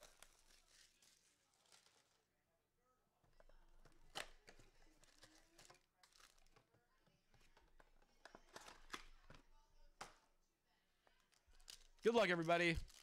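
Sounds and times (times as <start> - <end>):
card packs rustling: 11.5 - 13.0.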